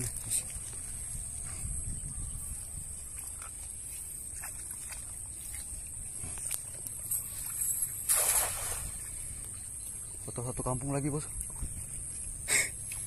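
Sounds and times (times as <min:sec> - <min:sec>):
cast net splashing onto water: 0:07.4 - 0:09.2.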